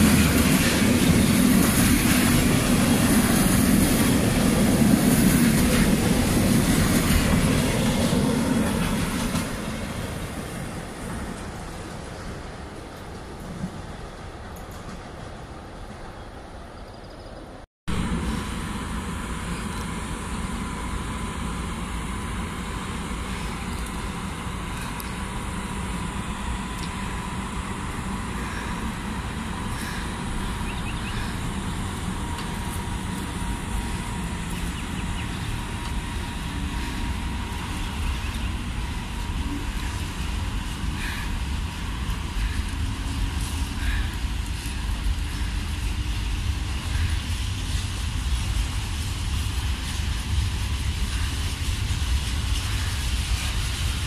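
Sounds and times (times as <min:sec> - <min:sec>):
train wheels rumbling on rail: 0:00.0 - 0:54.0
thin steady whine: 0:17.9 - 0:54.0.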